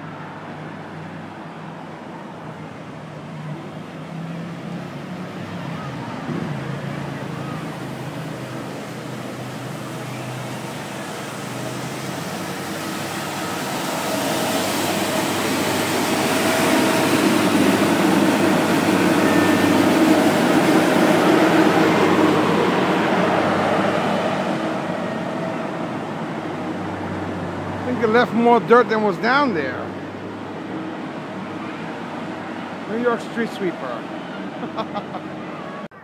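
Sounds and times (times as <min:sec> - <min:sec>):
street sweeper engine: 0:00.0 - 0:36.0
sweeper brushes spinning: 0:06.8 - 0:26.6.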